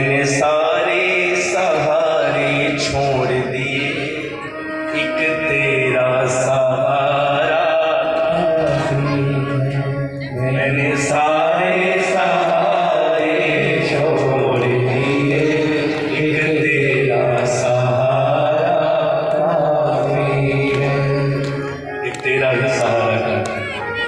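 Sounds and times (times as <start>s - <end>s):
keyboard accompaniment: 0.0s - 24.0s
person chanting devotional song: 0.0s - 24.0s.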